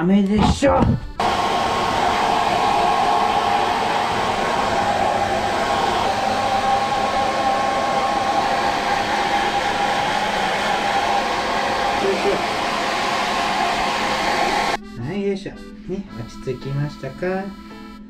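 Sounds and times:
hair dryer running: 1.2s - 14.8s.

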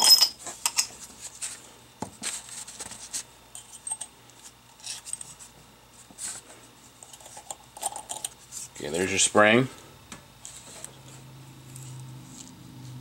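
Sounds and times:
metal parts clicking and clinking: 0.0s - 0.9s, 7.1s - 8.4s.

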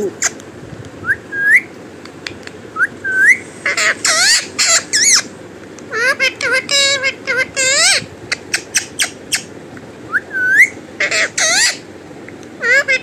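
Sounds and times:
parrot whistles: 1.0s - 1.7s, 2.8s - 5.2s, 10.1s - 11.8s
parrot squawking harshly: 3.6s - 5.3s, 5.9s - 9.5s, 11.0s - 11.8s, 12.6s - 13.0s.

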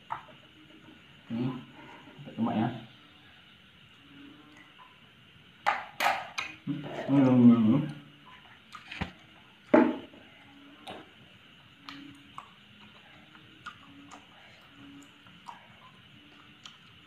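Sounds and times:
person chewing with mouth clicks: 11.8s - 15.8s, 16.4s - 17.0s.

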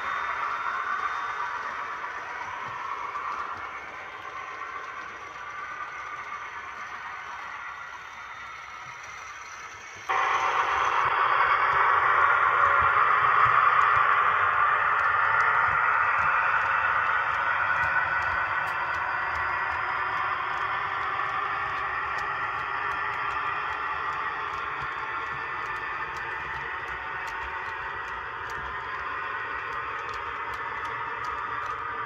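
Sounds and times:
model train whirring: 0.0s - 32.0s.

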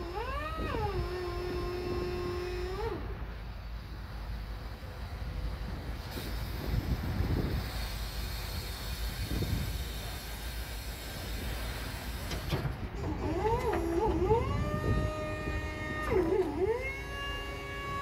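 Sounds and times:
wind rumble on microphone: 0.0s - 3.4s, 5.1s - 18.0s.

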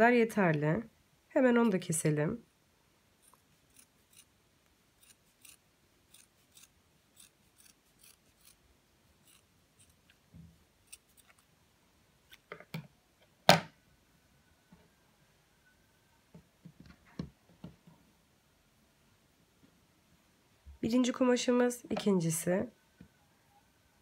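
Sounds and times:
scissors cutting fabric: 3.2s - 4.3s, 5.0s - 8.6s, 9.2s - 10.2s, 10.8s - 11.5s.

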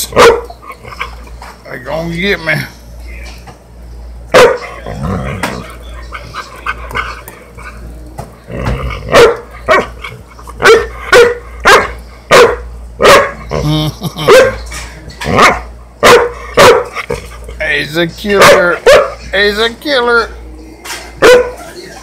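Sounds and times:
small dog barking: 0.1s - 0.5s, 4.3s - 4.7s, 9.1s - 9.9s, 10.6s - 13.4s, 14.3s - 14.6s, 15.4s - 16.9s, 18.4s - 19.2s, 21.2s - 21.6s.

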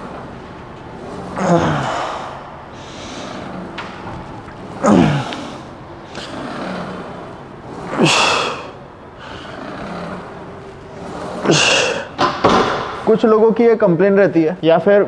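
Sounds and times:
man breathing: 1.3s - 3.8s, 7.9s - 10.2s
man exhaling forcefully: 1.4s - 3.4s.

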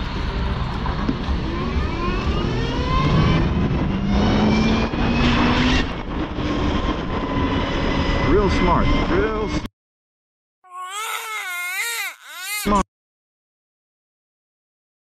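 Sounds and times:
motorcycle engine accelerating: 0.0s - 8.4s
wind rumble on microphone: 0.0s - 9.5s.

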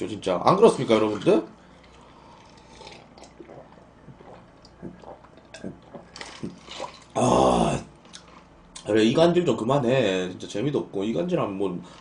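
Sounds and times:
man gulping a drink: 1.0s - 8.5s.

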